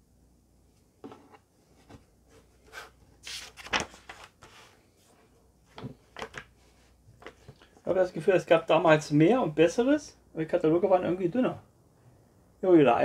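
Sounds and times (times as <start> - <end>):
paper pages turning: 2.7 - 4.8.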